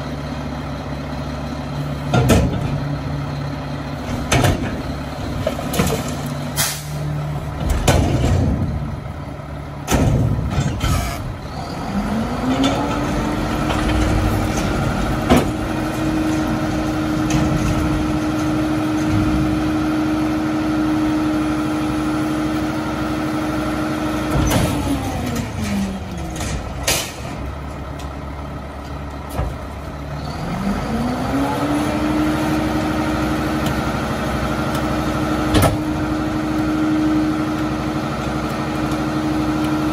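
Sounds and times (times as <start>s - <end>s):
diesel truck engine revving: 0.0s - 39.9s
metal clanks and bangs: 2.1s - 3.0s, 4.0s - 9.2s, 9.8s - 11.4s, 24.2s - 27.7s.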